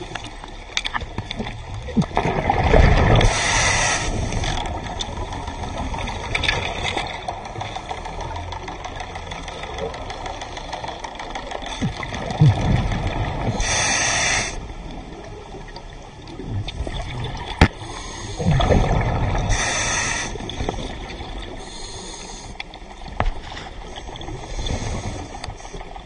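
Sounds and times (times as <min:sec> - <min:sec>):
regulator hissing inhalations: 0:03.3 - 0:04.5, 0:13.5 - 0:14.6, 0:19.5 - 0:20.5, 0:21.6 - 0:22.6
bubbling exhaled air: 0:11.7 - 0:14.6, 0:16.4 - 0:22.3.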